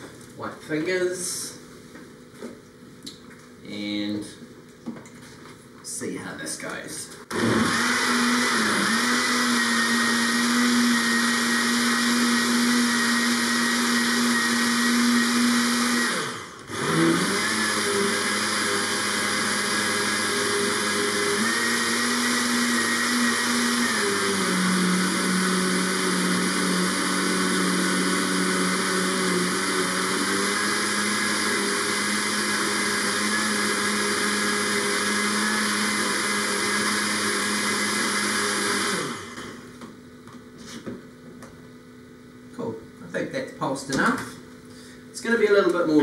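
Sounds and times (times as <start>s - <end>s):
blender motor blending ice: 7.3s - 39.7s.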